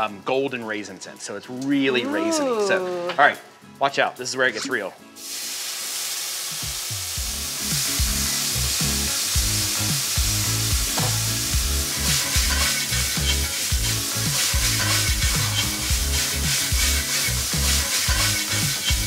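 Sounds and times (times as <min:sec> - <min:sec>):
liquid sizzling in hot skillet: 0:05.1 - 0:19.0.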